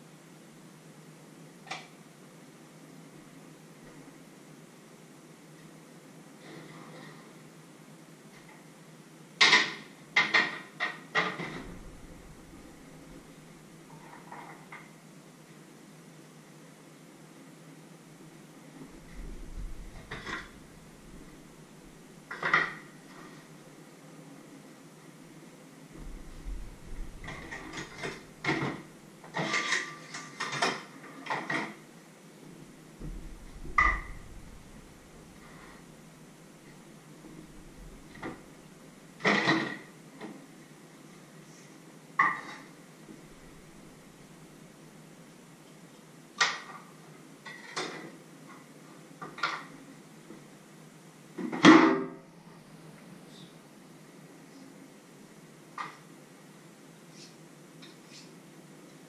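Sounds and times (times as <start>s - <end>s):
utensils knocking on wooden counter: 33.0s - 35.0s
dishes clattering: 33.2s - 35.6s.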